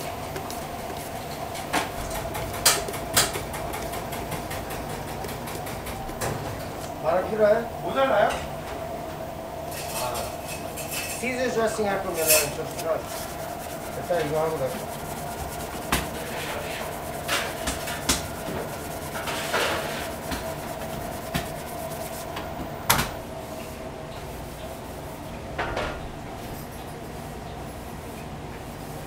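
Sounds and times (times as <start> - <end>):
tomatoes rolling in metal bowl: 0.0 - 6.9, 9.7 - 22.6
steady hum: 0.0 - 29.0.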